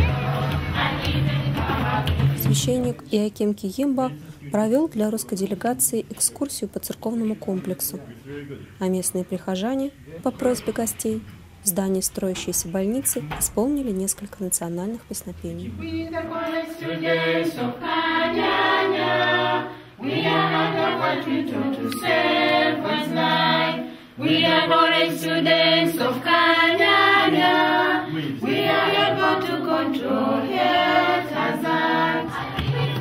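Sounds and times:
choir singing: 0.0s - 2.6s, 15.7s - 33.0s.

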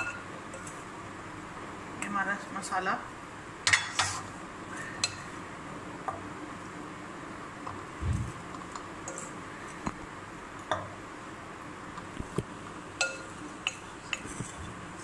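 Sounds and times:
spoon clinking against glass: 13.0s - 13.8s.

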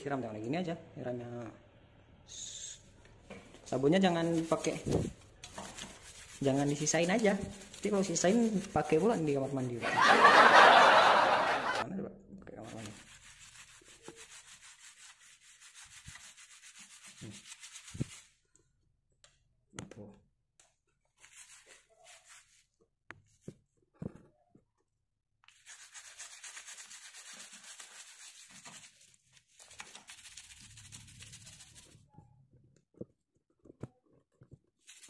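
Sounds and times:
brush scrubbing metal sprocket: 4.0s - 9.8s, 12.6s - 18.3s, 25.5s - 32.0s.

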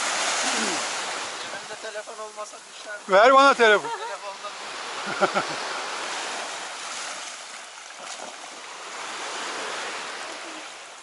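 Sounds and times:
rushing water: 0.0s - 11.0s.

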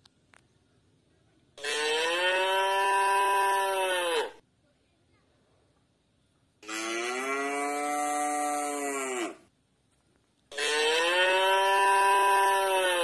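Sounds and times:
cow mooing: 1.6s - 4.4s, 6.6s - 9.4s, 10.5s - 13.0s.

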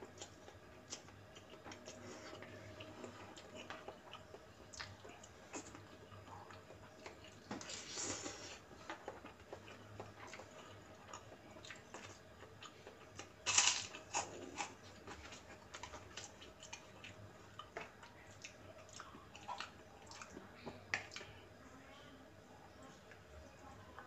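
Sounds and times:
chewing fried noodles: 0.0s - 21.4s
biting crisp rice cracker: 13.0s - 14.8s.

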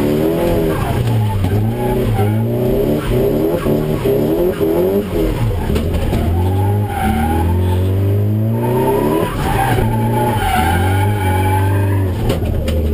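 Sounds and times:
car engine droning under load: 0.0s - 12.9s
tyres squealing: 8.6s - 12.4s.

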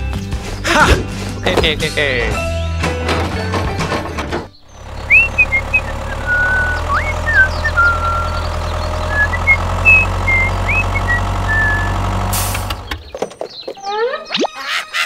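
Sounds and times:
birds chirping: 0.2s - 2.8s, 4.2s - 15.0s
tractor engine rumbling: 2.9s - 14.1s.

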